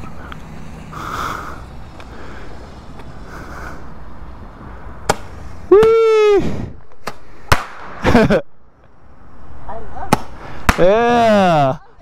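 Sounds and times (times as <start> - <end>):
person shouting whee: 5.7 - 6.5.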